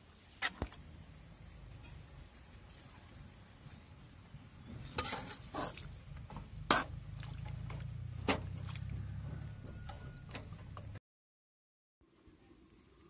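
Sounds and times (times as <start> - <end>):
gravy sloshing: 4.7 - 9.4.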